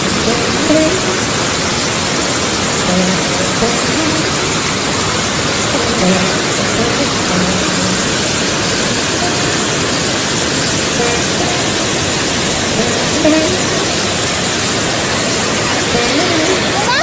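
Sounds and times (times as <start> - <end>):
floodwater rushing: 0.0 - 17.0
faint voices: 15.0 - 17.0.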